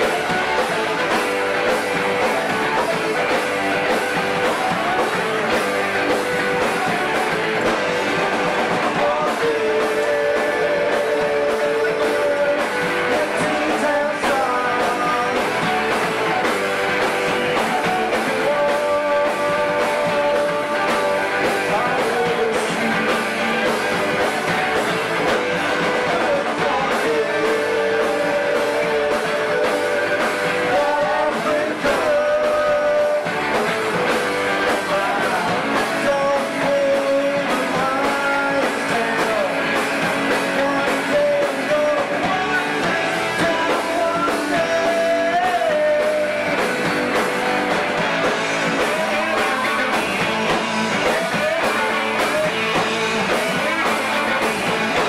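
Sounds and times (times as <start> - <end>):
electric guitars and bass: 0.0 - 55.0
person singing: 0.0 - 55.0.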